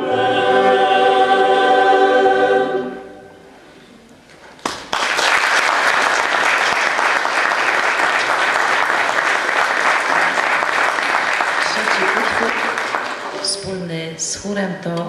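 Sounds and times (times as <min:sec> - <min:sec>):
choir singing: 0:00.0 - 0:03.6
audience applause: 0:04.6 - 0:13.6.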